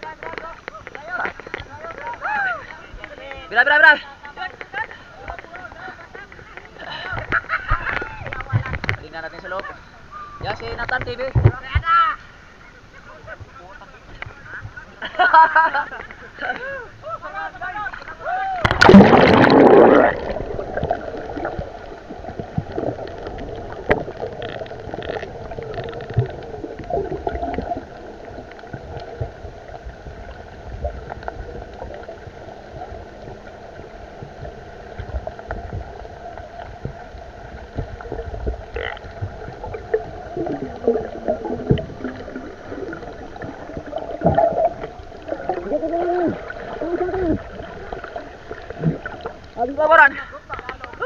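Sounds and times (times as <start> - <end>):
muffled underwater wash: 0.0 - 51.0
underwater clicks and knocks: 0.1 - 3.4, 6.3 - 9.5, 22.3 - 27.8, 37.6 - 45.6.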